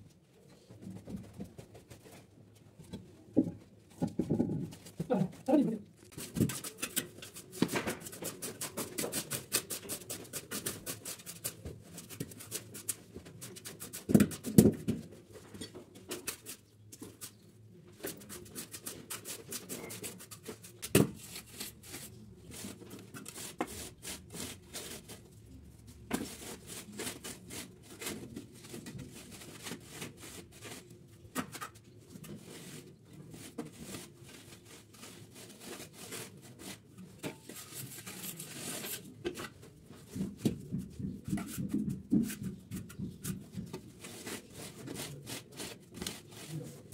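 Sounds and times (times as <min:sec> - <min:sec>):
trowel scraping mortar: 0:37.4 - 0:39.1.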